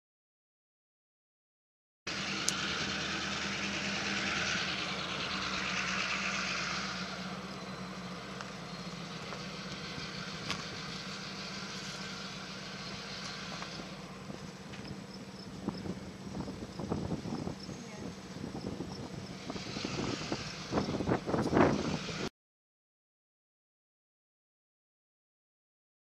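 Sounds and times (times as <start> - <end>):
low engine hum: 2.1 - 22.3.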